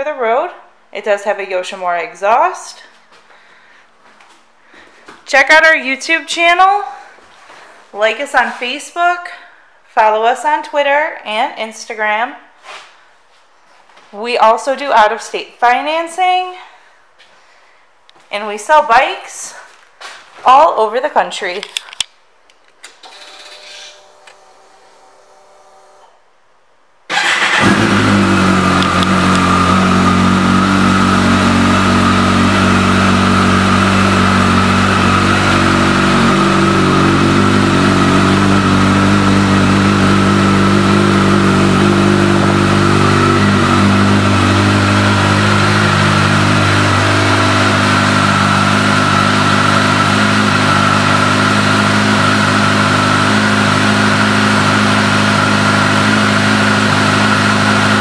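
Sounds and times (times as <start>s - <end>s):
motorcycle engine idling: 27.1s - 58.0s.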